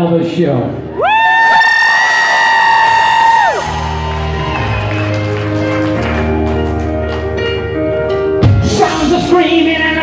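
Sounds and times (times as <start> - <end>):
live rock band: 3.6 - 10.0.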